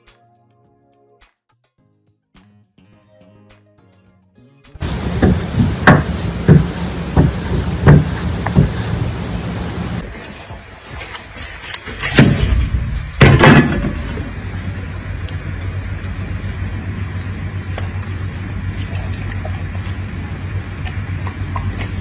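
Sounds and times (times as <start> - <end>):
cleaver chopping on wooden board: 4.8 - 9.5
steady low hum: 4.8 - 10.1, 14.0 - 22.0
fruit handling ticks and rustles: 17.0 - 22.0.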